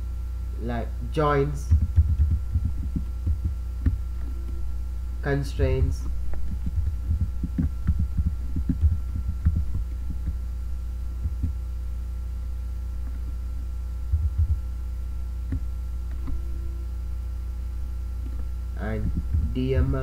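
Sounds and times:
low electrical hum: 0.0s - 20.0s
computer keyboard keys tapping: 1.7s - 4.6s, 6.3s - 10.4s, 11.2s - 11.6s, 14.1s - 14.6s, 19.0s - 19.6s.

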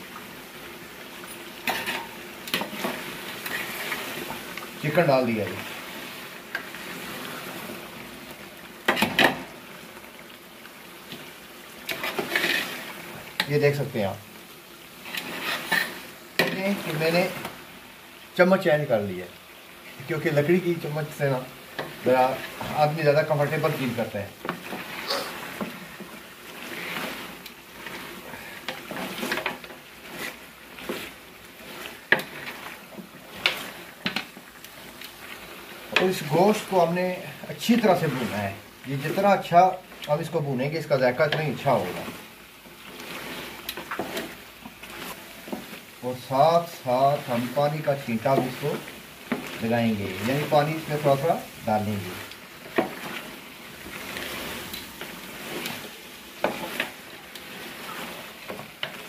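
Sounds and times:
chicken sizzling in masala: 0.0s - 59.0s
wooden spoon stirring and scraping: 0.6s - 10.3s, 10.9s - 17.7s, 18.4s - 59.0s
spoon stirring in pot: 24.4s - 36.2s, 42.9s - 45.9s, 47.2s - 51.5s, 52.2s - 59.0s.

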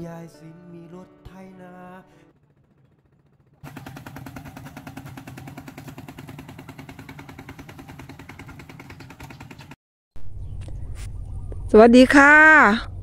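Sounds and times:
diesel engine chugging: 1.4s - 9.8s.

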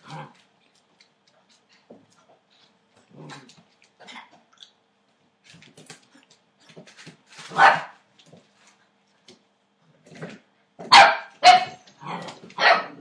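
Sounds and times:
puppy barking: 7.5s - 8.0s, 10.9s - 11.8s, 12.6s - 13.0s.

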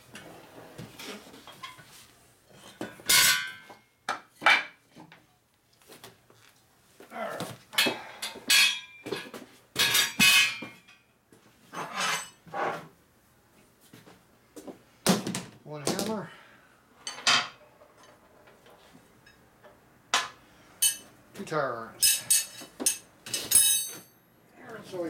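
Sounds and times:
metal tools clanking: 20.8s - 21.1s, 22.0s - 24.1s.

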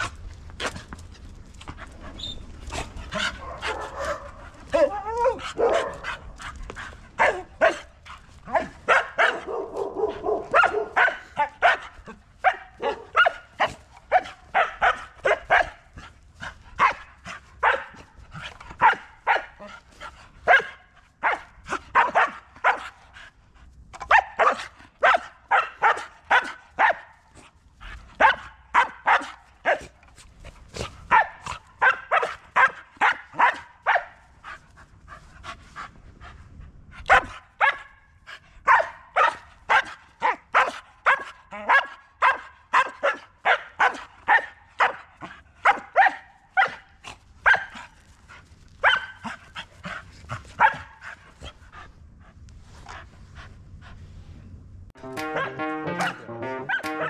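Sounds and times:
drawn-out dog sound: 0.0s - 54.4s
dog barking: 3.2s - 6.2s, 7.2s - 7.9s, 8.5s - 15.8s, 16.8s - 18.1s, 18.8s - 19.6s, 20.5s - 23.0s, 24.0s - 27.2s, 28.2s - 30.0s, 31.1s - 34.2s, 37.1s - 38.0s, 38.7s - 47.8s, 48.8s - 49.3s, 50.6s - 51.0s.

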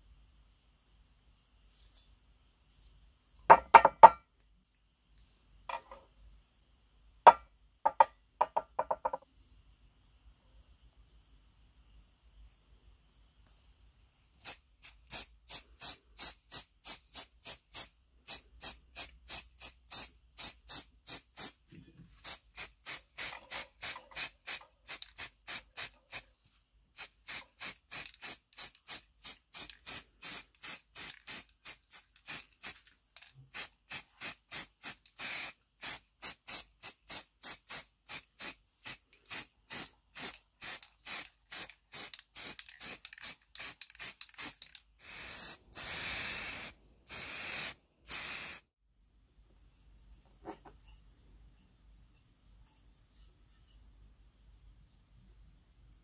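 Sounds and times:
spray can hissing: 14.4s - 21.6s, 22.2s - 26.2s, 27.0s - 32.8s, 33.5s - 48.7s.

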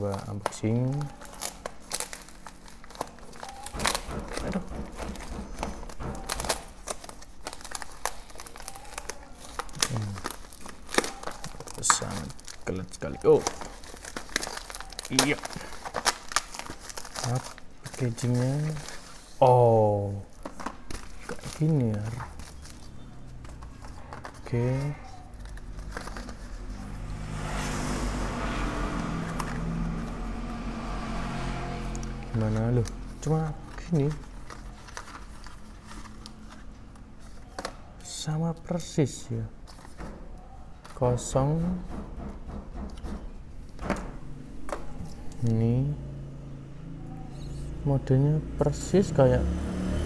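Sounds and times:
plastic bag crinkling and tearing: 0.0s - 4.5s, 5.7s - 19.4s, 20.3s - 26.6s, 32.8s - 37.8s
vehicle engine passing by: 21.5s - 37.4s, 43.4s - 50.0s.

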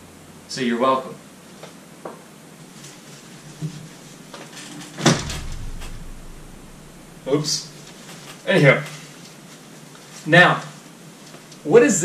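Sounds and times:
loud thump with low rumble: 5.0s - 8.0s.

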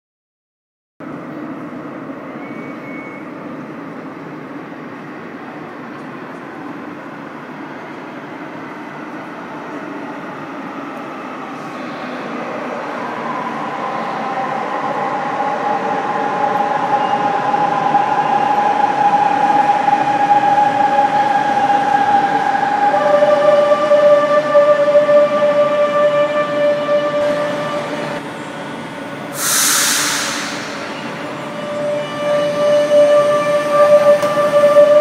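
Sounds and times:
train rumble: 1.1s - 35.0s
high braking whine: 16.6s - 35.0s.

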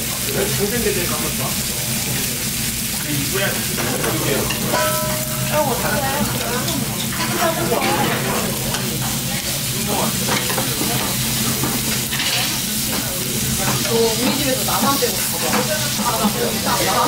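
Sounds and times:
beef sizzling on grill plate: 0.0s - 17.0s.

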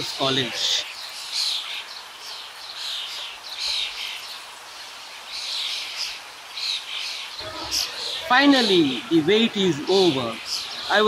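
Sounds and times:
many birds chirping: 0.0s - 11.0s.

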